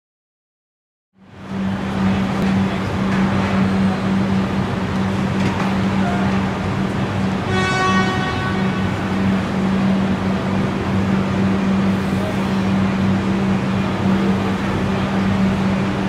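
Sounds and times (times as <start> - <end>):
train horn: 7.4 - 9.2.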